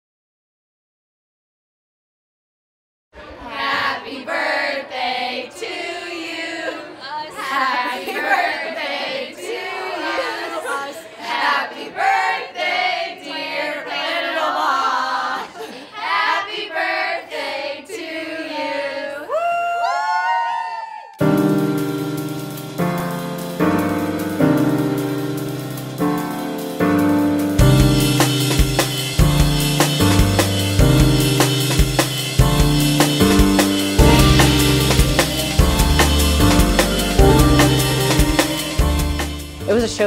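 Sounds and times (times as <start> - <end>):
choir singing a song: 3.2 - 19.3, 32.2 - 39.6
rising pitch sweeps: 32.8 - 39.6.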